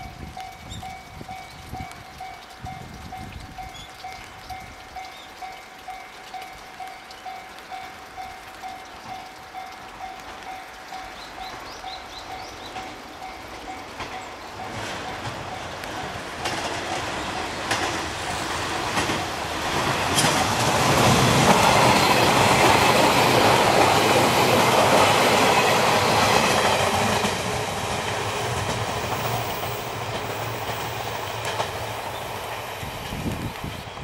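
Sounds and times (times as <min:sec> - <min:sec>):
electric train passing: 0:04.5 - 0:34.0
train wheels clattering: 0:12.4 - 0:33.9.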